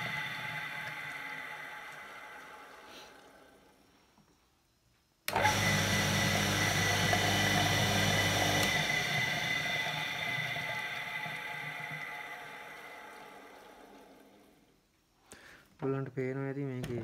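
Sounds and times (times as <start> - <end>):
water pump motor humming: 0.0 - 3.8, 5.3 - 14.7
motor running down: 5.3 - 14.5.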